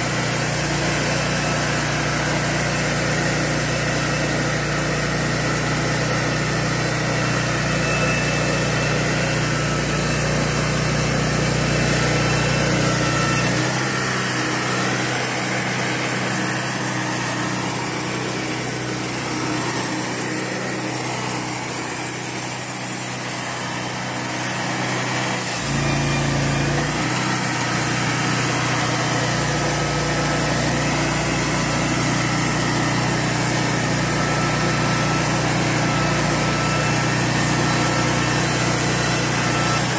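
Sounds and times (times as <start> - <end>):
band saw cutting wood: 0.0 - 39.9
sawmill engine running: 0.0 - 39.9.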